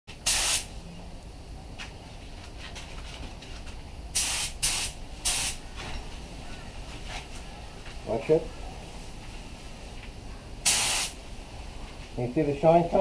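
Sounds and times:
spray gun hissing: 0:00.2 - 0:00.7, 0:04.2 - 0:05.6, 0:10.6 - 0:11.2.

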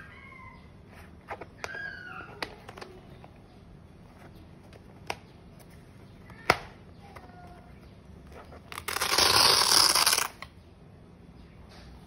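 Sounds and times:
velcro strap ripped open: 0:08.7 - 0:10.5.

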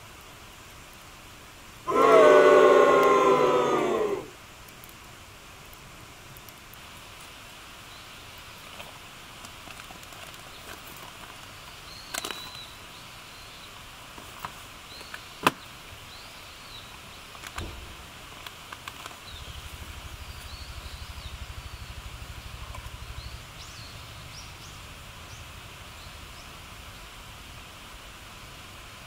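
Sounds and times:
steady outdoor hiss: 0:00.0 - 0:29.0
wood fire crackling and popping: 0:04.6 - 0:07.3, 0:08.4 - 0:12.6, 0:17.3 - 0:20.8
faint bird chirps: 0:11.6 - 0:13.8, 0:19.2 - 0:27.1
low rapid throbbing: 0:19.5 - 0:25.7.

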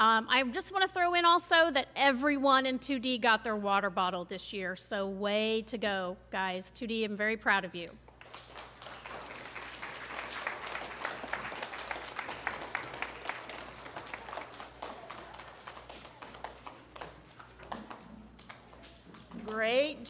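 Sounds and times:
audience applauding: 0:08.2 - 0:19.3.

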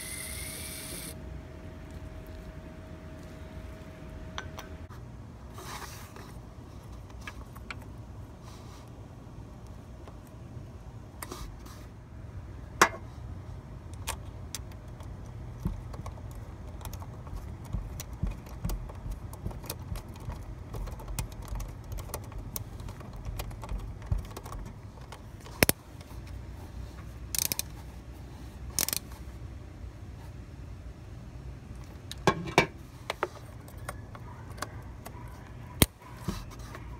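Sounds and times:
ratchet clicking and rattling: 0:27.3 - 0:27.7, 0:28.8 - 0:29.1.

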